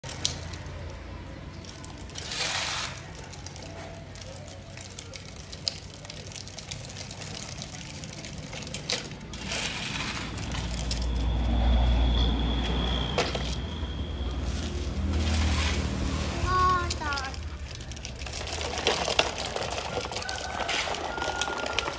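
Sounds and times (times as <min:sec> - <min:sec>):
toy truck wheels scraping pavement: 0:00.0 - 0:21.9
passing vehicle rumble: 0:08.1 - 0:21.9.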